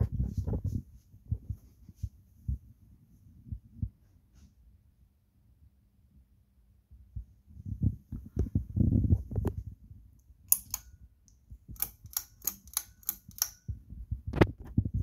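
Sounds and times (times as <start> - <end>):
sharp clicks: 10.5 - 13.7.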